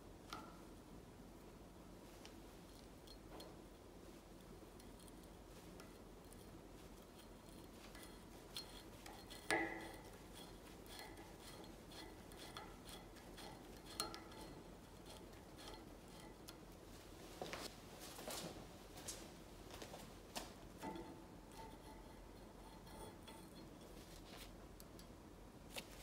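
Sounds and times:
metal pick clicking and scraping: 0:04.4 - 0:16.8, 0:20.8 - 0:24.2.

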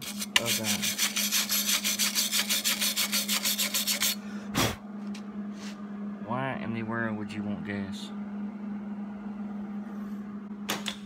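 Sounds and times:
wire brush scrubbing metal: 0:00.0 - 0:04.2.

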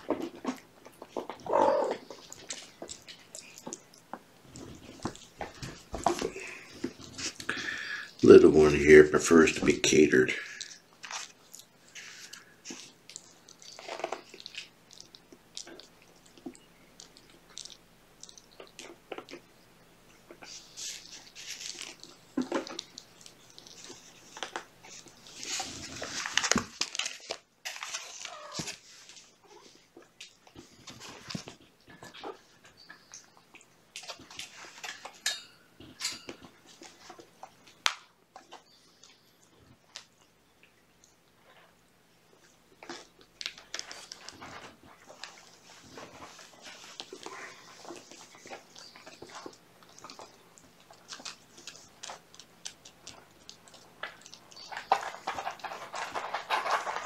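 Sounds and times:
small clicks taps and rustles: 0:00.0 - 0:07.6, 0:20.2 - 0:41.7, 0:42.4 - 0:57.0
kittens chewing food: 0:00.0 - 0:57.0
small wet clicks: 0:46.3 - 0:57.0.

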